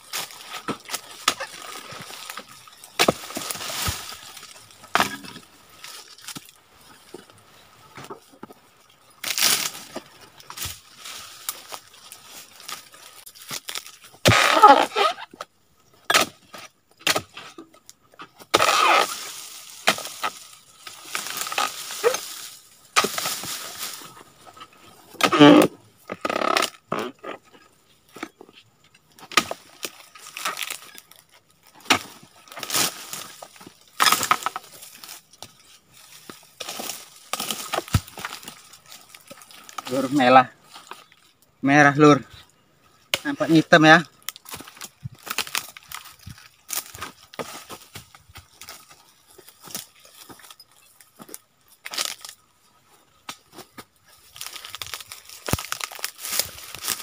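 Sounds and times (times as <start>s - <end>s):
pole cutter cracking fibrous wood: 13.4s - 15.2s, 18.5s - 24.0s, 54.4s - 57.0s.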